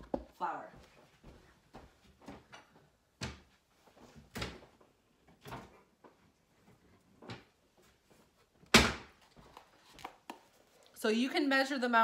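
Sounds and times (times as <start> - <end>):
cupboards and drawer opening and shutting: 4.1 - 6.0.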